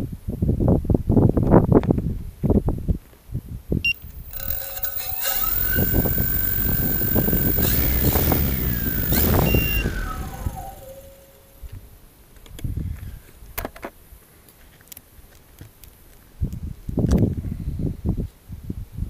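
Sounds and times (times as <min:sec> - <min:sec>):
multicopter propellers whining: 0:04.0 - 0:11.6.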